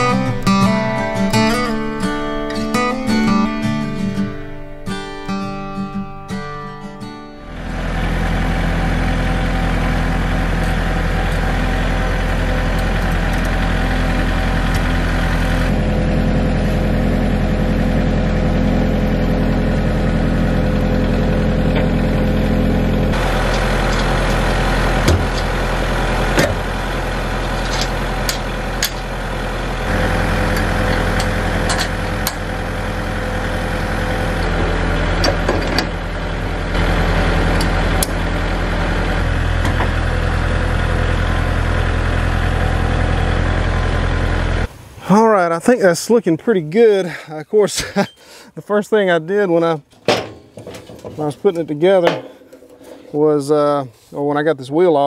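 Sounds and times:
tractor engine idling: 0.0s - 54.5s
metal clanks and clicks: 23.1s - 25.6s, 27.5s - 29.1s, 30.5s - 32.4s, 35.2s - 36.0s, 49.9s - 53.3s.

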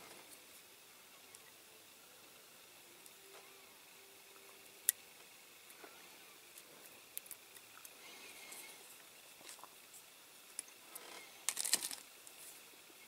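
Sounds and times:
masking tape peeling crinkles: 11.0s - 12.1s.

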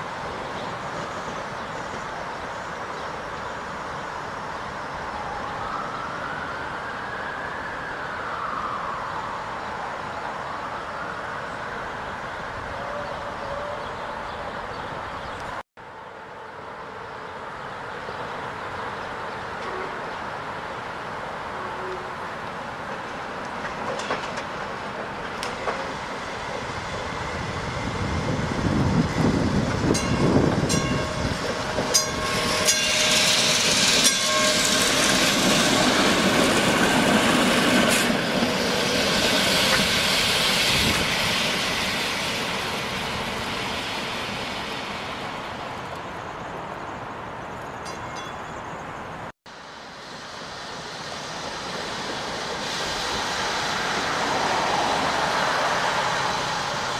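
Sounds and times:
streetcar wheels rumbling on track: 0.0s - 5.6s, 10.8s - 56.9s.

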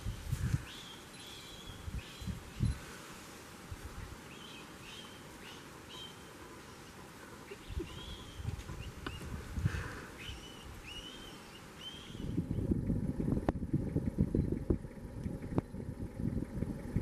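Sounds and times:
low outdoor rumble: 0.0s - 17.0s
bird chirping: 0.6s - 2.9s, 4.0s - 9.4s, 10.1s - 12.7s.

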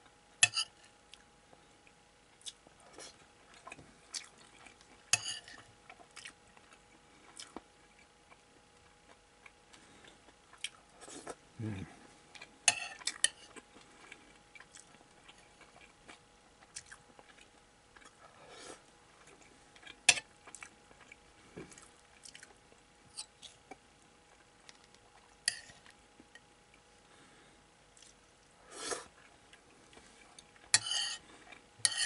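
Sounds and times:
chewing: 2.3s - 26.8s
fork clinking on ceramic plate: 30.8s - 31.2s.

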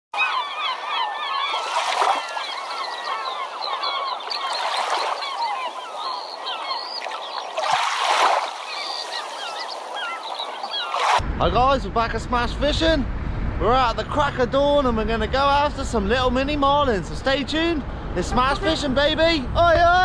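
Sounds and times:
flock of birds calling: 0.2s - 11.0s, 18.3s - 18.9s
waves washing in: 0.8s - 11.2s.

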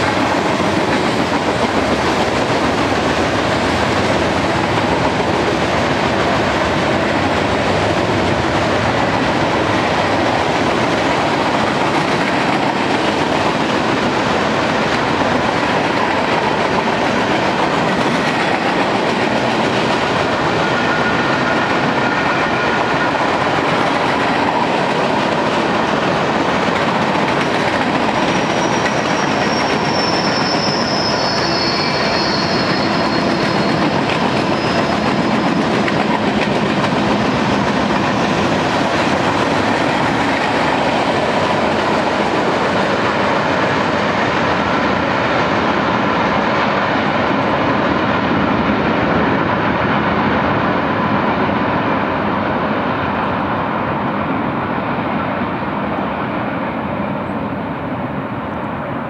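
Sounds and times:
train wheels rumbling on rail: 0.0s - 59.0s
high wheel squeal: 28.2s - 35.7s.

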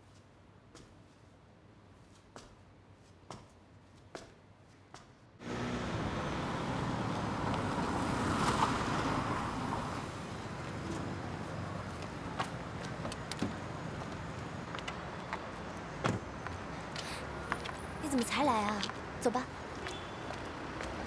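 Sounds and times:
traffic hum: 5.2s - 21.0s
car passing: 5.4s - 14.8s.

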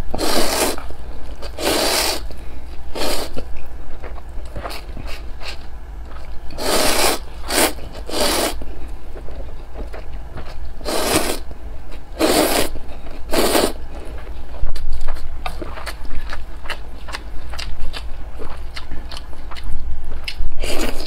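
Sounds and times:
wet noodle slurps: 0.2s - 0.8s, 1.6s - 2.2s, 6.6s - 8.6s, 10.8s - 11.4s, 12.2s - 12.7s, 13.3s - 13.8s.

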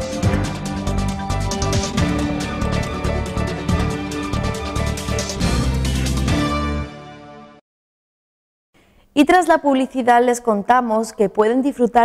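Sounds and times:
electronic theme music: 0.0s - 7.6s.

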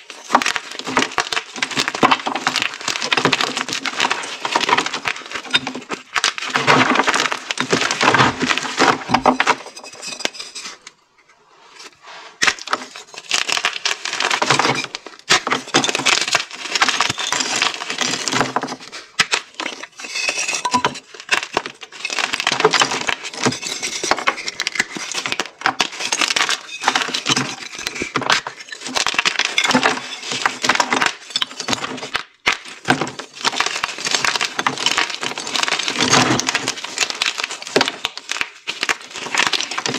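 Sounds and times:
chalk crunching and cracking: 11.7s - 39.9s.

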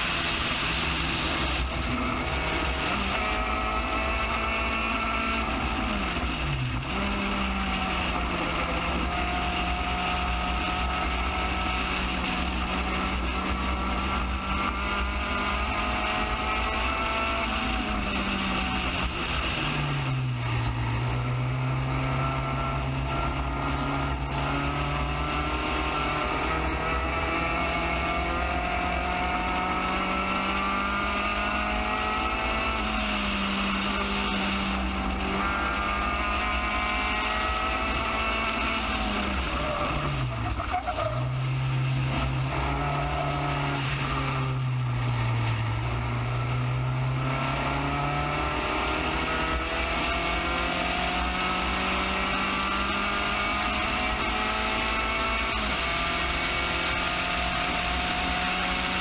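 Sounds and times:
racing car engine revving: 0.0s - 59.0s.

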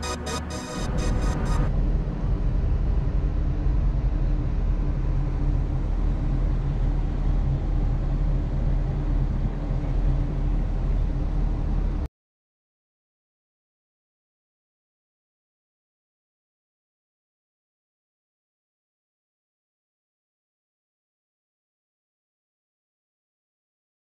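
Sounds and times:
low vehicle rumble: 0.0s - 12.1s.

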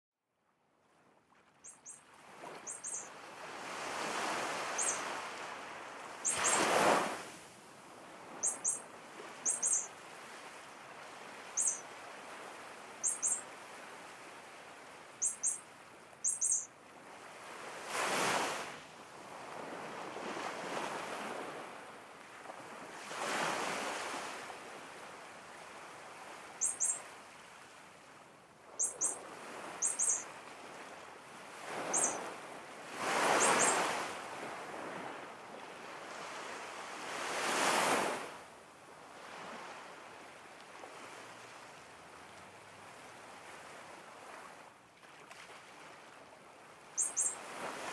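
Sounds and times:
high bird chirps: 1.6s - 2.0s, 2.6s - 3.1s, 4.7s - 5.1s, 6.2s - 6.7s, 8.4s - 8.8s, 9.4s - 9.9s, 11.6s - 11.8s, 13.0s - 13.4s, 15.2s - 15.6s, 16.2s - 16.7s, 26.6s - 27.0s, 28.8s - 29.2s, 29.8s - 30.2s, 31.9s - 32.2s, 33.4s - 33.8s, 47.0s - 47.4s.

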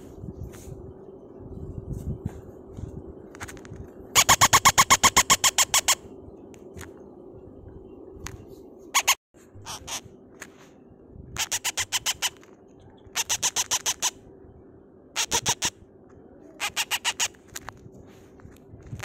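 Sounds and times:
parrot chick begging calls: 4.2s - 6.0s, 9.0s - 10.0s, 11.4s - 12.4s, 13.1s - 14.2s, 15.2s - 15.8s, 16.6s - 17.4s.

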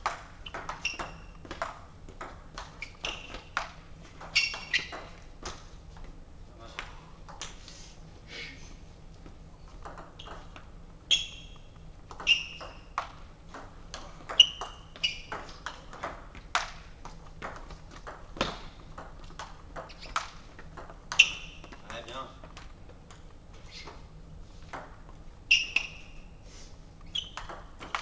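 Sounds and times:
ball bouncing on table: 0.0s - 5.7s, 9.7s - 10.7s, 12.1s - 23.3s, 24.7s - 25.1s, 27.2s - 28.0s
table tennis ball hits: 0.0s - 5.7s, 9.8s - 10.7s, 11.4s - 23.3s, 24.7s - 25.0s, 27.2s - 28.0s.

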